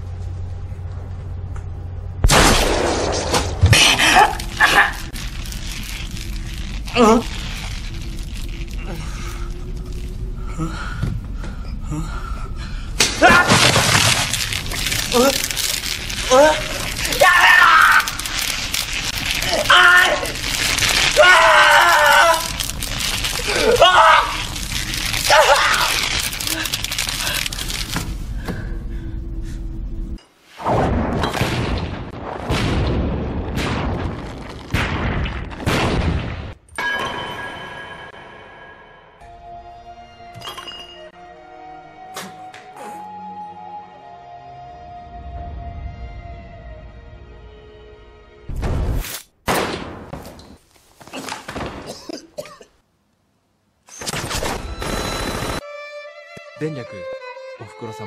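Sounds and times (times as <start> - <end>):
voice crying out: 3.8 - 5.1, 14.9 - 27.4.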